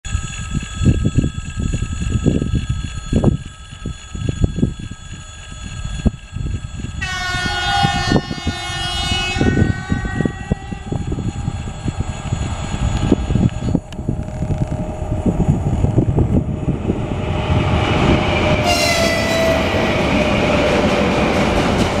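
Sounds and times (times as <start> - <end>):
wind on microphone: 0.1 - 22.0
locomotive horn blast: 7.0 - 11.0, 18.6 - 19.8.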